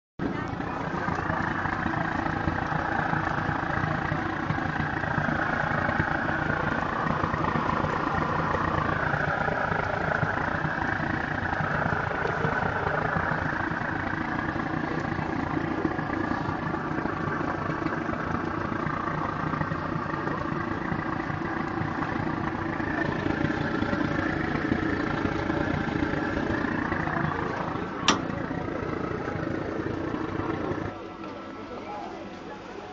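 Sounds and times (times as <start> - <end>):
oven mechanical running noise: 0.2 - 32.9.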